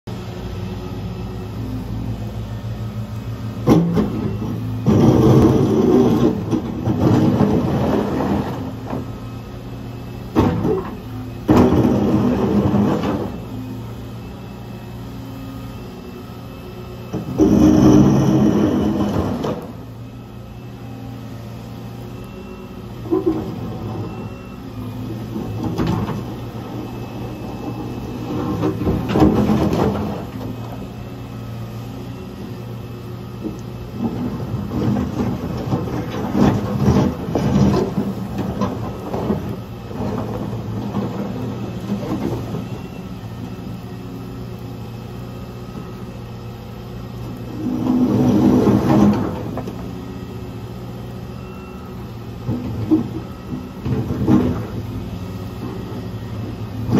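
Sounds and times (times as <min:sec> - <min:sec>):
excavator diesel engine running: 0:00.1 - 0:56.9
bucket scraping and dropping asphalt: 0:03.6 - 0:09.2, 0:10.4 - 0:13.4, 0:17.2 - 0:19.8, 0:27.7 - 0:30.6, 0:34.0 - 0:42.7, 0:47.5 - 0:49.9, 0:52.4 - 0:54.8.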